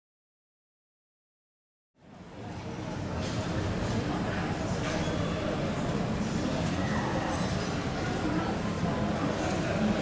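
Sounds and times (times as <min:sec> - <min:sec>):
broad noise: 0:02.0 - 0:10.0.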